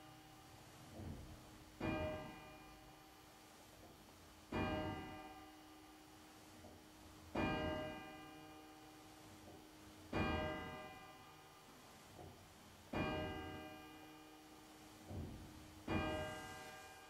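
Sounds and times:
church bell tolling: 1.8s - 3.2s, 4.5s - 5.9s, 7.3s - 9.1s, 10.1s - 11.6s, 12.9s - 14.5s, 15.8s - 17.0s.

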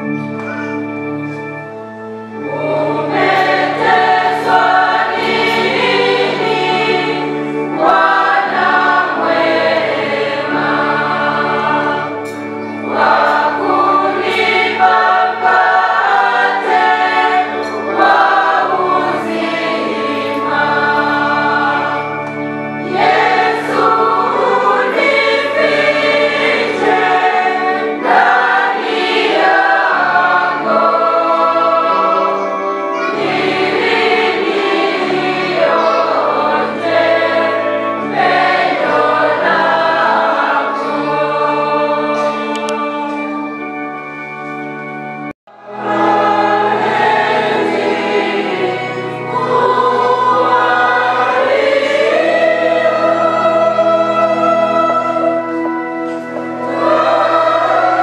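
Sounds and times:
choir singing a hymn: 0.0s - 58.0s
held keyboard chords: 0.0s - 58.0s.

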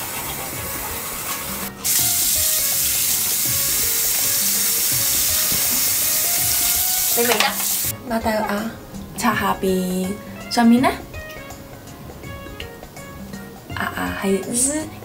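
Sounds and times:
tap running into basin: 0.0s - 7.9s.

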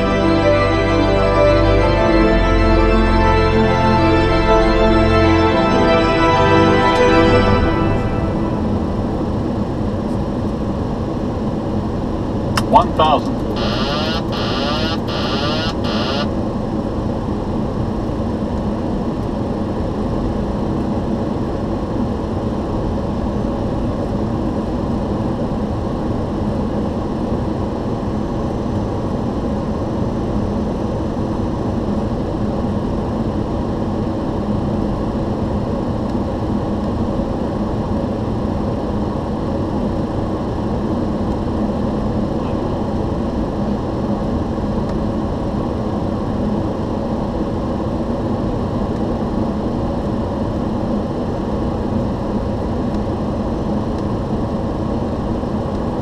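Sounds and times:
low steady hum: 0.0s - 16.3s.

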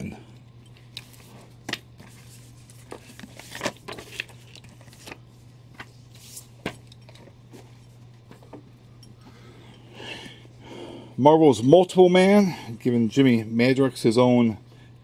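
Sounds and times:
steady low hum: 0.0s - 15.0s
paper rustling and sliding: 1.0s - 8.5s.

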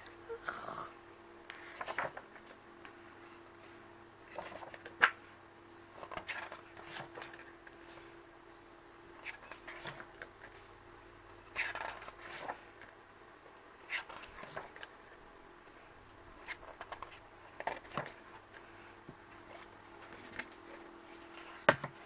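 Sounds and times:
book pages rustling: 1.5s - 2.6s, 3.2s - 5.2s, 5.9s - 8.2s, 9.2s - 10.7s, 11.5s - 13.0s, 13.8s - 15.0s, 16.4s - 22.0s.

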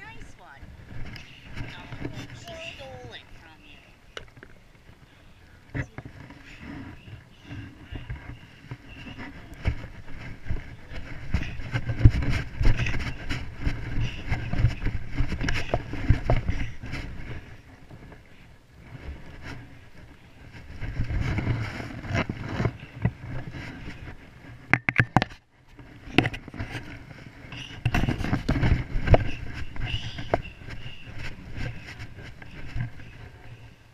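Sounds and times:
wind rumble on microphone: 0.0s - 33.9s
camera handling scrapes and knocks: 5.8s - 18.2s, 20.6s - 33.5s.

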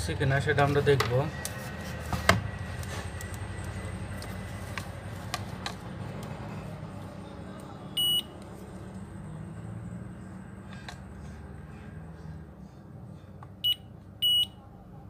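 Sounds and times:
steady low hum: 0.0s - 15.0s
multimeter high beep: 8.0s - 8.3s, 13.6s - 14.6s.

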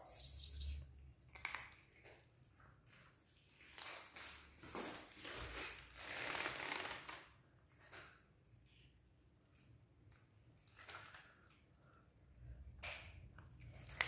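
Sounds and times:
cat crunching dry kibble: 1.2s - 2.3s, 12.4s - 14.0s.

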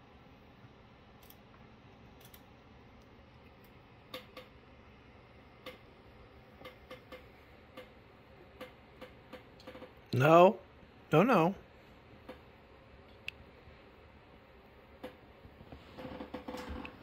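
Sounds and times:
faint room hiss: 0.0s - 17.0s.

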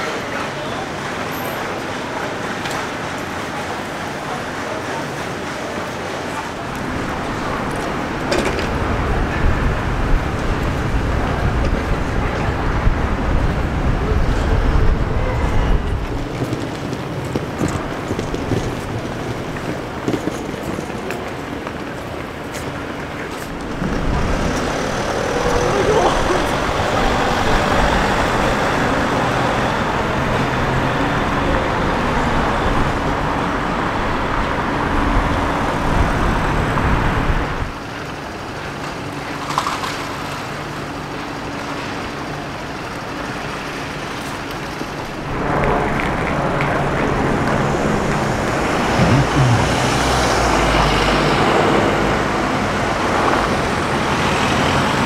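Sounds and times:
road traffic rushing past: 23.2s - 37.7s, 45.2s - 55.0s.

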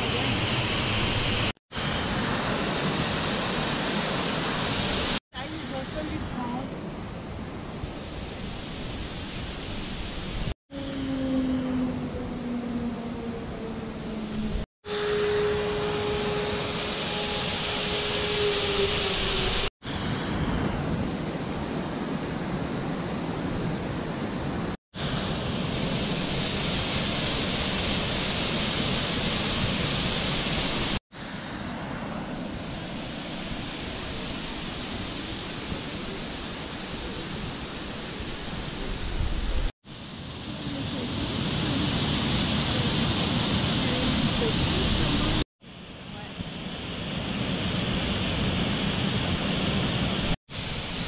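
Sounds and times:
low hum falling in pitch: 10.7s - 19.7s
waterfall rushing: 14.9s - 19.7s.

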